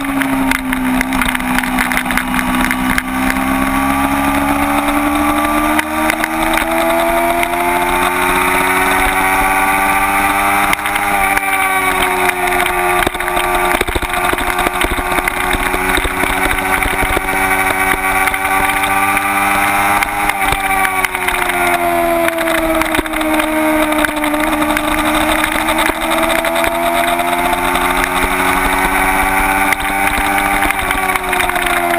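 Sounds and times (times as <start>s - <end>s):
motorcycle engine at high revs: 0.0s - 31.9s.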